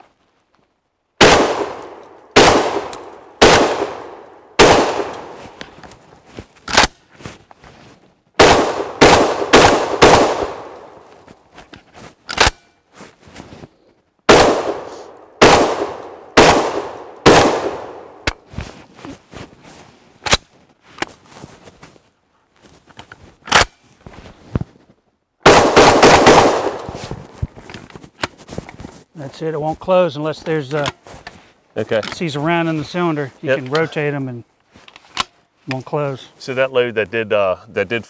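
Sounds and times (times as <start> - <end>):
shotgun shots: 1.2 - 5.4, 8.4 - 11.0, 14.3 - 18.3, 25.4 - 27.1.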